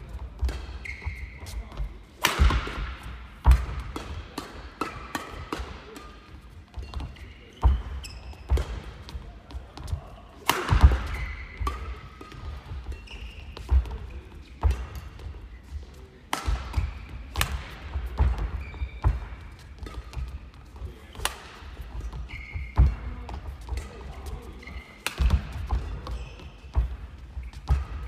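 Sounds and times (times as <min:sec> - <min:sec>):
racket hitting shuttlecock: 0:00.4 - 0:01.2, 0:02.1 - 0:07.9, 0:10.4 - 0:14.0, 0:16.3 - 0:24.0, 0:25.0 - 0:27.0, 0:27.6 - 0:28.0
shoes squeaking on floor: 0:00.7 - 0:02.0, 0:06.7 - 0:10.4, 0:11.0 - 0:15.8, 0:18.3 - 0:21.1, 0:21.7 - 0:28.0.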